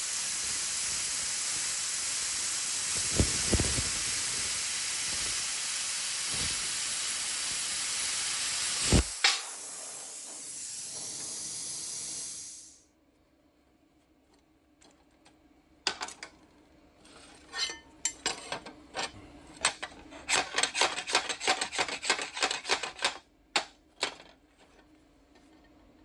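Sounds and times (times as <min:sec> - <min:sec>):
steel plate scraping steel: 0:17.0 - 0:18.4.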